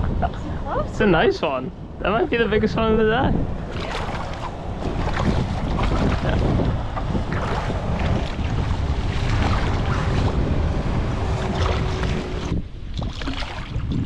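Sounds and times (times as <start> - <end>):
wind buffeting microphone: 0.0 - 14.0
fish splashing in water: 3.7 - 10.6, 11.2 - 14.0.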